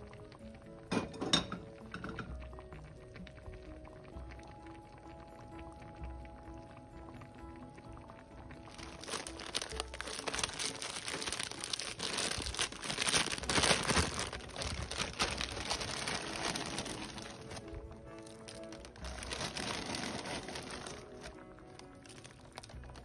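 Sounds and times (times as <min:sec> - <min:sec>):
soft background music: 0:00.0 - 0:23.0
plastic bag crinkling: 0:08.7 - 0:23.0.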